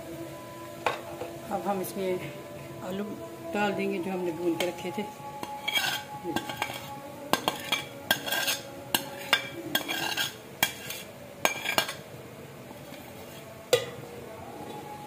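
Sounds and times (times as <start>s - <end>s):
spoon scraping ceramic plate: 5.4s - 12.0s.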